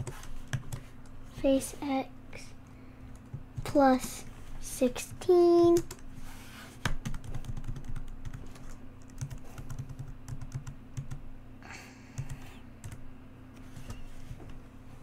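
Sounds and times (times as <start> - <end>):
keyboard typing: 0.0 - 0.9, 6.8 - 11.2, 12.2 - 13.0.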